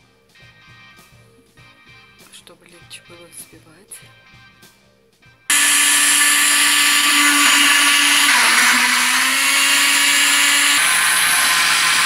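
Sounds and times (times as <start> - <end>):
blender motor whirring: 5.5 - 12.0.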